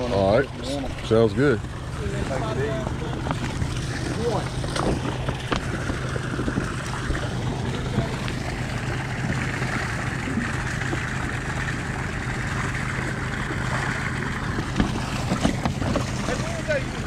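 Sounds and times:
boat engine idling: 0.0s - 17.0s
water lapping: 0.0s - 17.0s.

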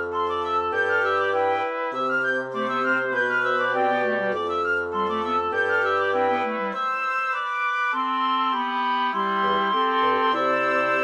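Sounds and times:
woodwind quintet playing: 0.0s - 11.0s.

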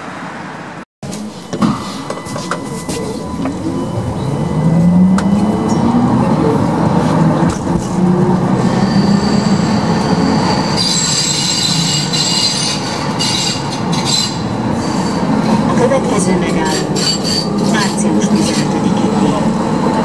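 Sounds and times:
tram motor whine: 0.2s - 20.0s
high-pitched wheel squeal: 1.1s - 7.0s, 8.6s - 15.7s, 16.6s - 19.3s.

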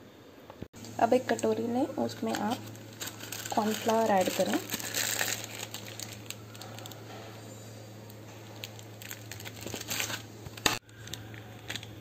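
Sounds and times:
faint electrical hum: 0.0s - 12.0s
plastic packet crinkling: 1.3s - 7.0s, 8.4s - 12.0s.

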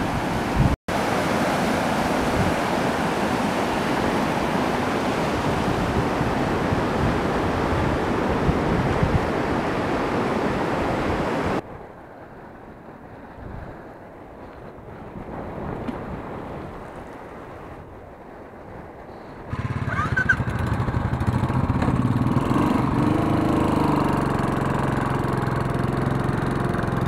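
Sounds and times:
river rapids rushing over rocks: 0.0s - 6.9s.

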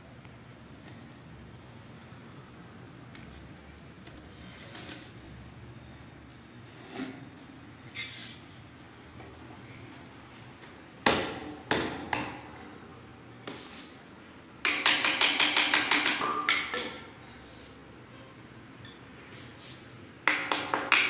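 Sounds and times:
hammer tapping metal handle: 14.6s - 17.0s.

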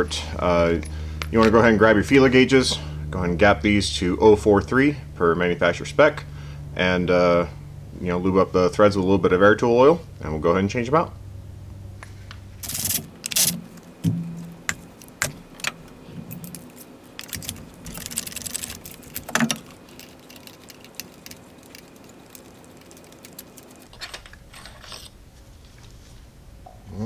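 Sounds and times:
metal clinking: 23.2s - 25.2s.

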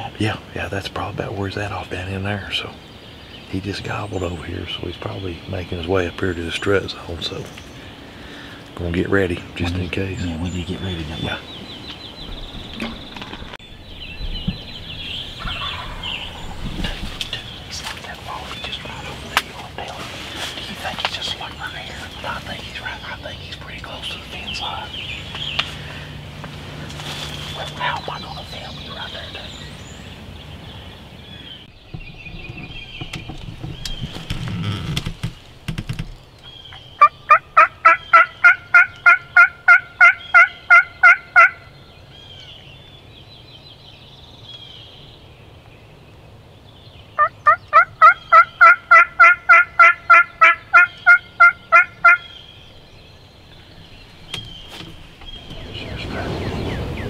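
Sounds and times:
turkey yelps: 15.4s - 16.5s, 37.0s - 41.6s, 47.2s - 52.4s.

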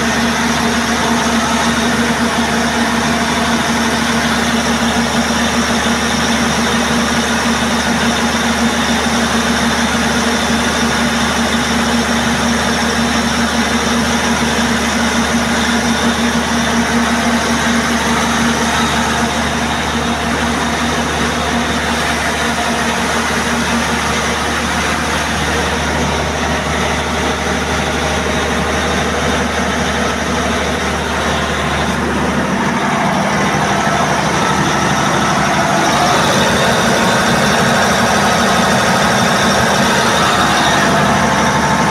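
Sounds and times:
diesel generator running: 0.0s - 41.9s.

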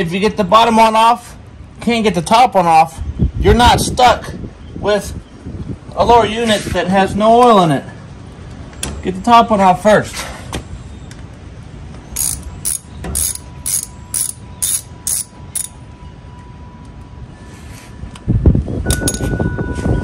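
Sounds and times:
wrench clicking: 12.2s - 15.8s.

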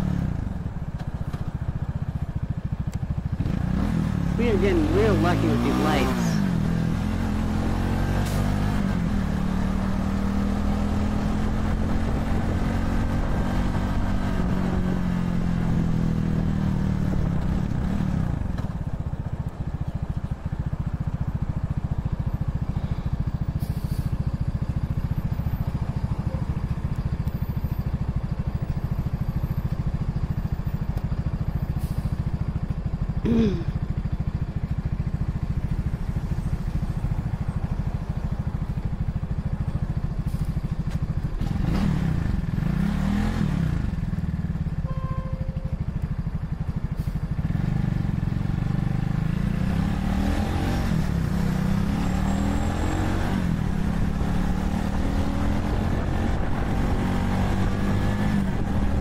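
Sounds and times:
motorcycle engine idling: 0.3s - 4.3s, 17.2s - 41.6s, 43.9s - 49.3s.

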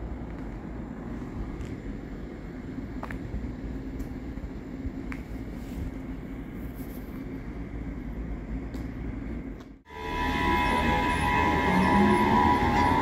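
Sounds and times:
train rumbling: 0.0s - 13.0s.

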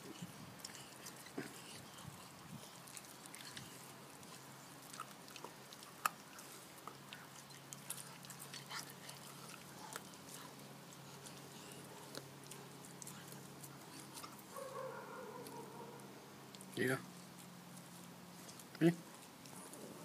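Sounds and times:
puppy gnawing a bone: 0.0s - 20.0s
teeth crunching on a chew: 0.1s - 14.5s.

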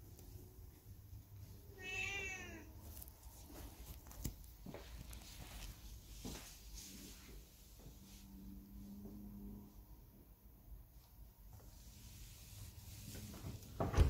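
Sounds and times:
cat meowing: 1.7s - 2.7s.

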